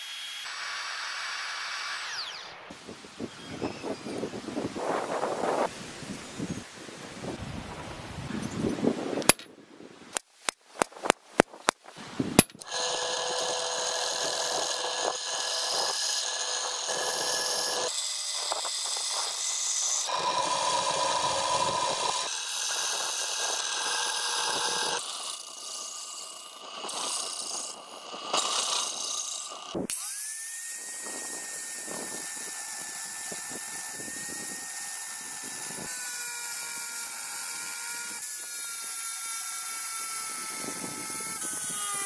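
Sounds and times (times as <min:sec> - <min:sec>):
drill press boring into brass: 0:12.4 - 0:42.0.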